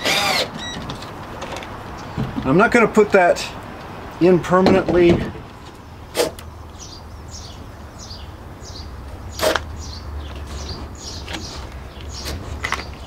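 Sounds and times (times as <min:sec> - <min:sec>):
small bird chirping: 0:06.5 - 0:13.0.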